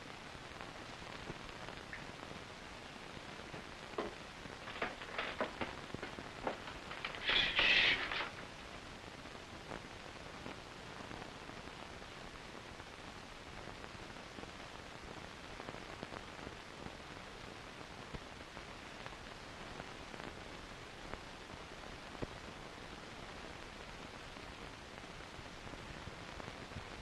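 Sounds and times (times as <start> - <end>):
faint crackles: 0.0 - 27.0
film soundtrack hiss: 0.0 - 27.0.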